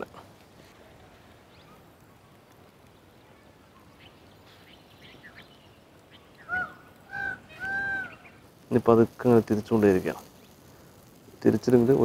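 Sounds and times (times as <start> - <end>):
faint bird chirps: 0.8 - 8.5.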